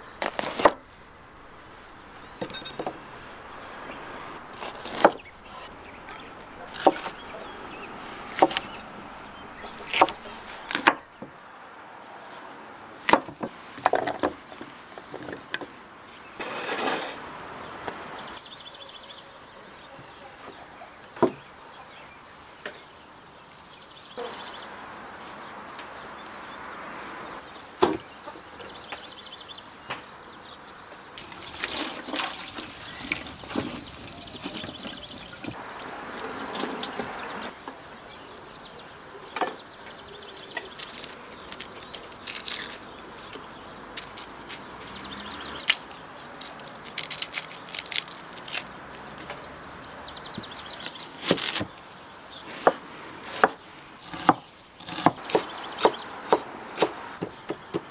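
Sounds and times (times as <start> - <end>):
water splashing in metal bowl: 31.2 - 34.6.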